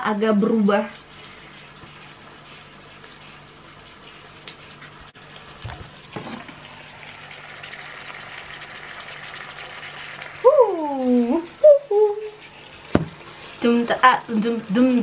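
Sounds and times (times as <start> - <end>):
chicken sizzling in a frying pan: 0.0 - 15.0.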